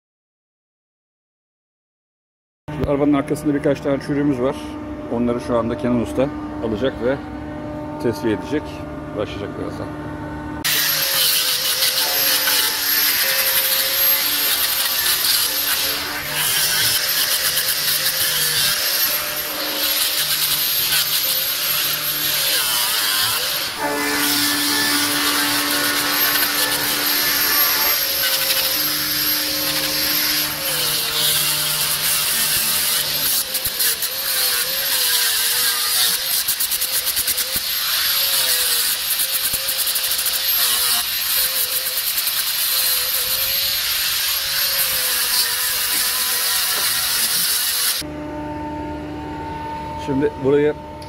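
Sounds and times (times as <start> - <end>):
disc sander grinding metal: 10.6 - 48.1.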